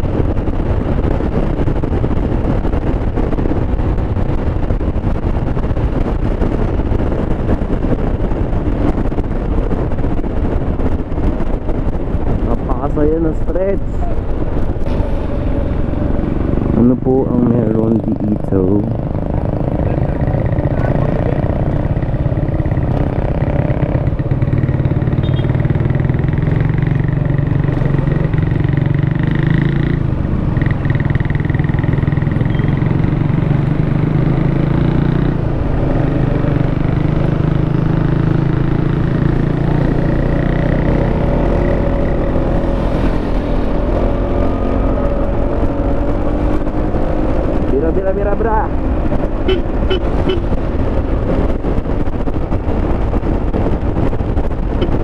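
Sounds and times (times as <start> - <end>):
scooter engine running: 19.2 - 27.2.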